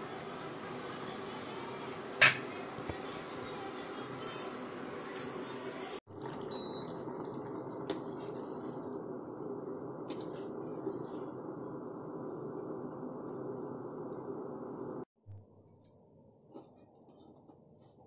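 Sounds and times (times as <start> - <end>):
cooktop button beep: 6.5 - 6.9.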